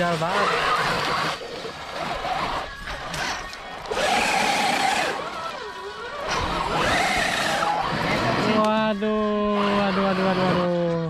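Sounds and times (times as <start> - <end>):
rc car motor whine: 0.0 - 11.0.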